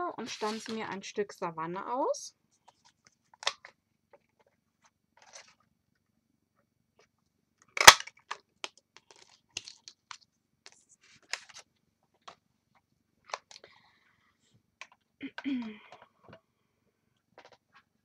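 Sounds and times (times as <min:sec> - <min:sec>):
paper rustling: 0:00.2 - 0:00.9, 0:02.6 - 0:05.6, 0:09.0 - 0:12.4.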